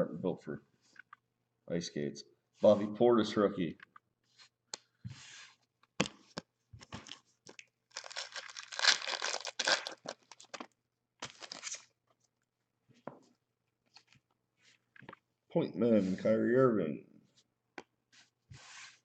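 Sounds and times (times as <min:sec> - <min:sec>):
foil wrapper tearing and crinkling: 0:07.9 - 0:11.9.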